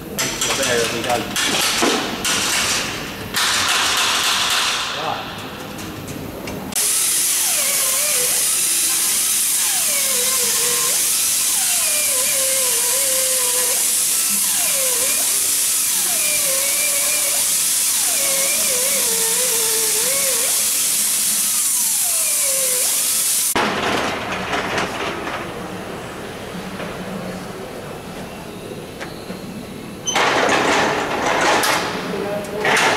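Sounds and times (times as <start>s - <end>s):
air drill running: 6.8s - 23.6s.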